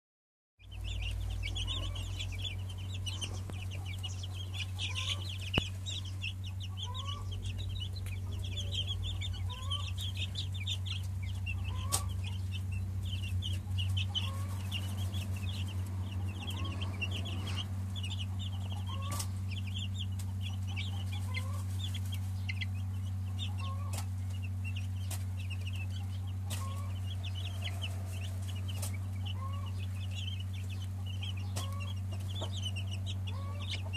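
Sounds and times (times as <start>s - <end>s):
chicks peeping: 0.6s - 33.9s
steady low hum: 0.6s - 33.9s.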